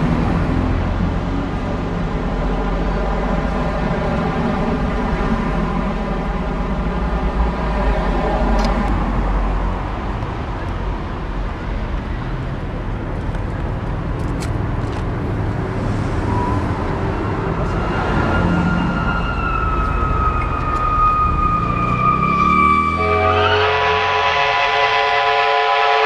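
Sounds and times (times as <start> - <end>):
engine-like drone: 0.0 - 25.8
road traffic rumble: 0.0 - 26.0
high whistle tone falling in pitch: 16.2 - 24.4.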